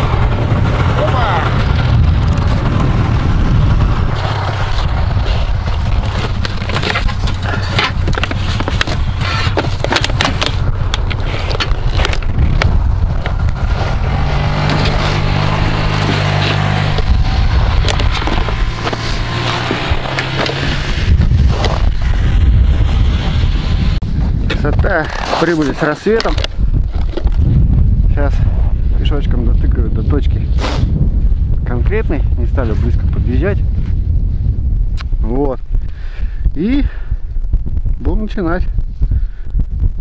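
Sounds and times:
snowmobile engine running: 0.0s - 27.5s
wind rumble on microphone: 0.0s - 40.0s
sled runners scraping snow: 4.0s - 10.6s, 13.6s - 24.0s, 24.8s - 26.3s.

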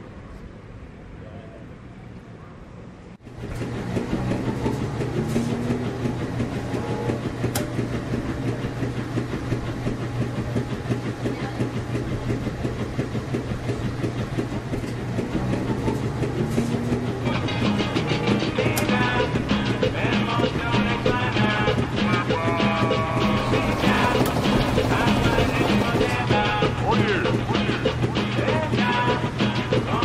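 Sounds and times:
washing machines running: 3.2s - 30.0s.

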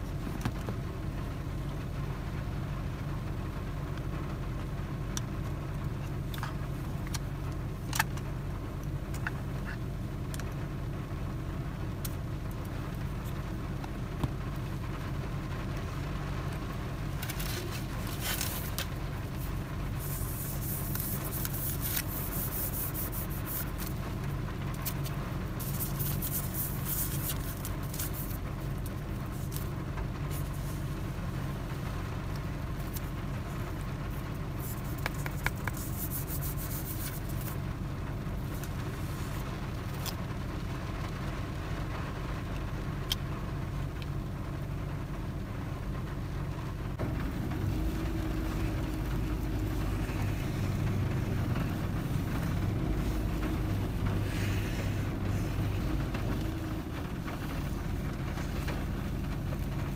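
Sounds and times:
steady low rumble: 0.0s - 59.9s
packaging crinkling and scraping: 17.2s - 24.0s, 24.8s - 29.7s.

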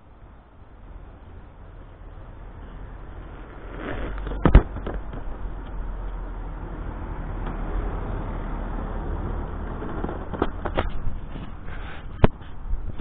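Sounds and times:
bike tyres rolling on concrete: 0.8s - 13.0s
car driving by: 1.8s - 10.6s.

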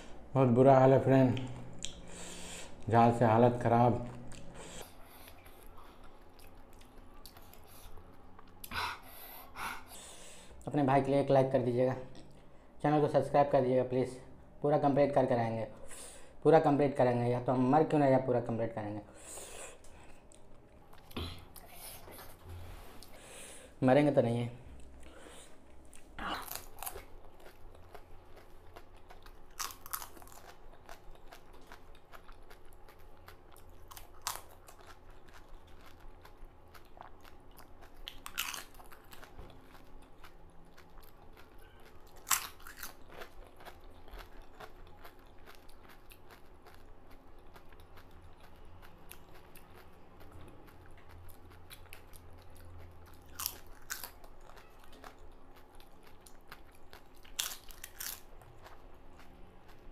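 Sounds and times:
quiet chewing: 4.0s - 9.9s, 19.5s - 23.5s, 24.7s - 59.9s
crunching of crisp shells: 25.8s - 59.9s.

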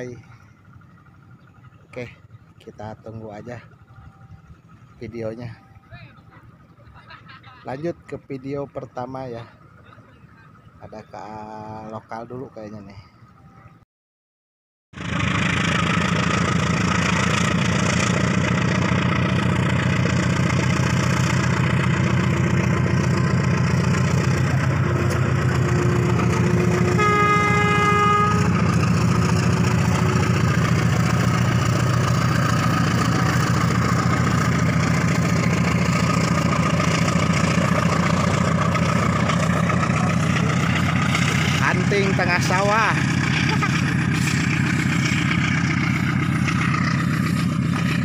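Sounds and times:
diesel locomotive running: 0.0s - 13.8s, 15.0s - 48.0s
train horn blast: 24.3s - 31.5s.

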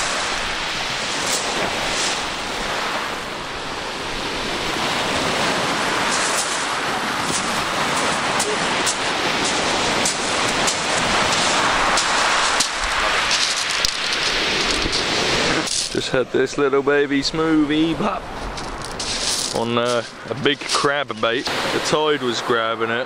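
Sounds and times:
small waves breaking on shingle: 0.0s - 16.0s, 18.2s - 21.8s
pebbles crunching: 5.9s - 16.0s, 18.4s - 21.2s.

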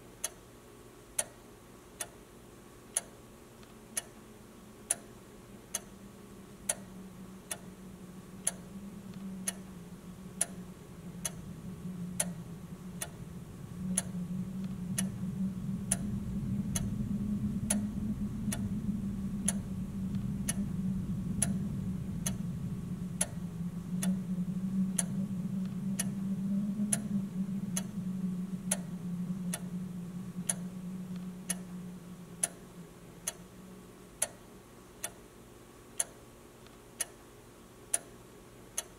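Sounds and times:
low hum: 0.0s - 38.9s
clock ticking: 4.9s - 5.1s, 37.9s - 38.1s.

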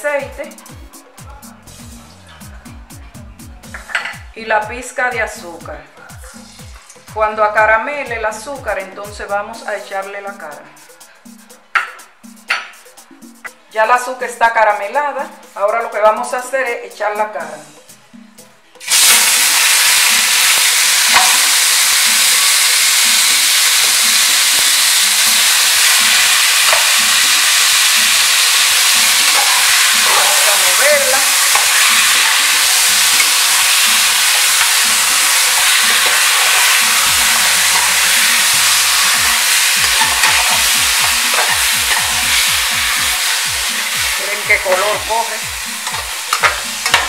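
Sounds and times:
meat sizzling in hot oil: 18.8s - 47.0s.

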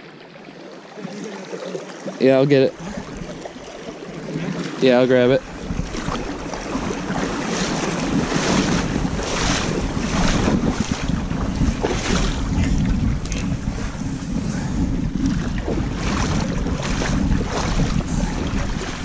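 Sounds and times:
person wading through water: 0.0s - 19.0s
wind rumble: 5.0s - 19.0s
microphone handling noise: 5.5s - 19.0s.

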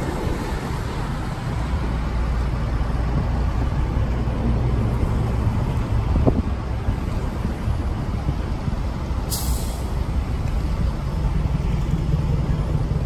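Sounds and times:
vehicles passing slowly: 0.0s - 13.0s
short hiss of air: 9.3s - 10.0s.

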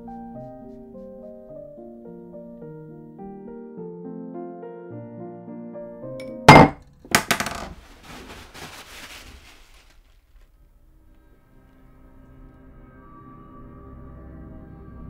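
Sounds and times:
piano music: 0.0s - 6.8s
glass bottle knocked over on desk: 6.2s - 7.8s.

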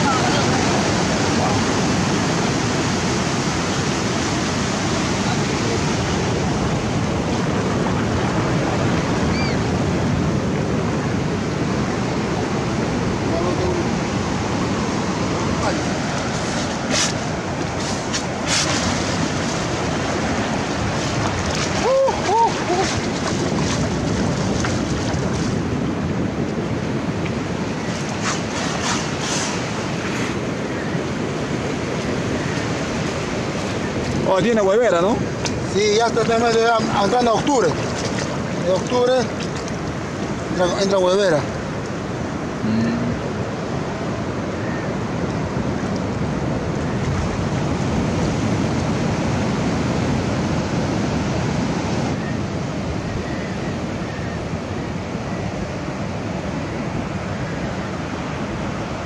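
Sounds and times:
ocean waves breaking: 0.0s - 59.0s
surf washing over sand: 0.0s - 59.0s
wind on microphone: 0.0s - 59.0s
feet splashing in water: 20.7s - 25.6s, 37.6s - 38.5s.

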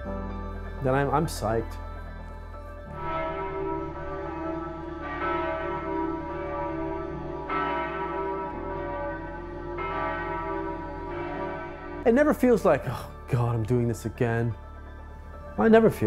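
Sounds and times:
church bell tolling: 0.0s - 16.0s.

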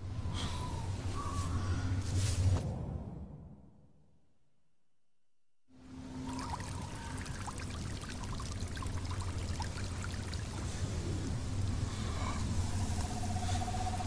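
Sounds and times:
low hum: 5.7s - 14.0s
trickling water-like wash: 6.0s - 13.1s.

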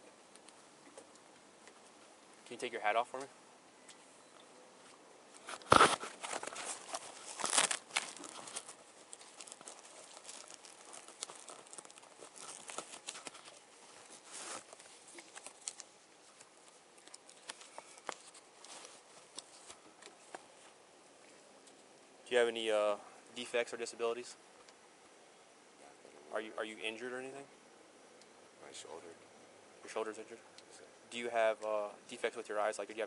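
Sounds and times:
rustling and crinkling handling noise: 4.8s - 22.5s.

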